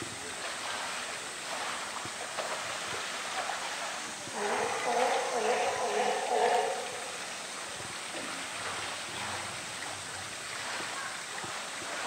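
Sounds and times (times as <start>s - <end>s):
water splashing and sloshing: 0.0s - 12.0s
people's voices: 3.2s - 8.4s.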